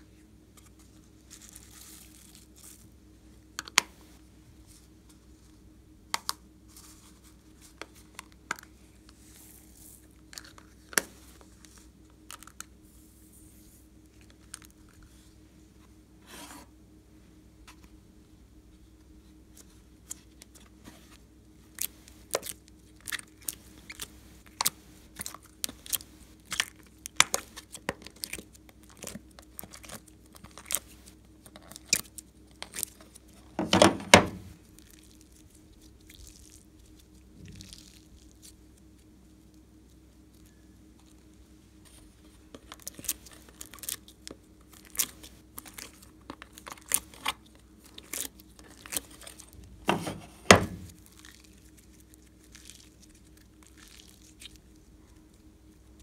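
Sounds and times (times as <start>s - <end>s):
slime squishing: 19.5s - 56.0s.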